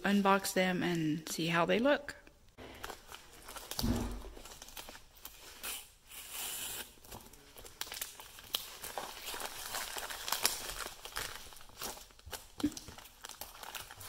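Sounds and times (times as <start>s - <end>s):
plastic mailer crinkling: 2.7s - 5.5s, 7.0s - 14.0s
dull thump: 3.8s - 4.4s.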